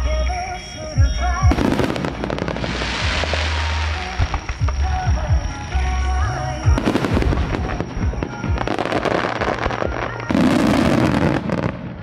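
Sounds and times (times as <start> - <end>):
fireworks bangs: 0.0 - 12.0
fireworks crackling: 0.0 - 12.0.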